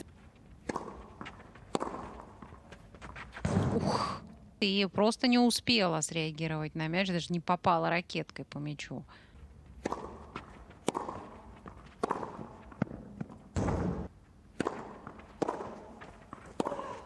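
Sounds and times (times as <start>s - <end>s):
tennis ball hit by rackets: 0.6s - 3.8s, 9.8s - 17.0s.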